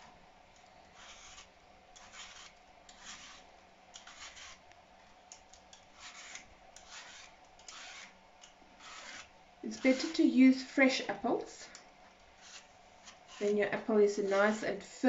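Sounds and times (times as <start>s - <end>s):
vegetable peeler scraping apple: 0.9s - 4.6s, 5.7s - 8.2s, 8.8s - 10.6s, 12.3s - 15.0s.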